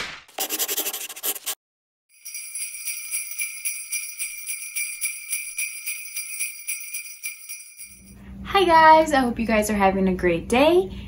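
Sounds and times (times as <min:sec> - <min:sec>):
jingle bells shaken: 0:02.1 - 0:08.2.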